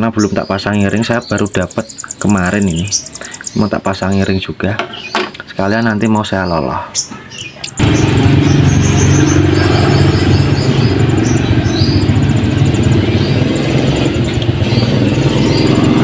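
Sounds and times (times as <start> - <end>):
engine running with low hum: 7.6 - 16.0.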